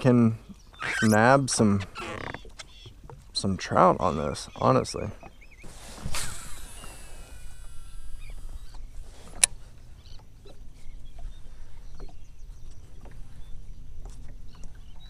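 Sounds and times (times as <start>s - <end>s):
faint chirps and ticks: 7.6s - 15.0s.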